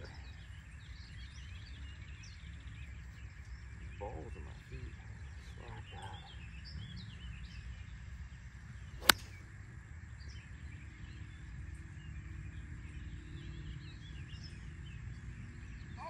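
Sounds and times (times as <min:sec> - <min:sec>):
golf club striking ball: 0:09.0 - 0:09.4.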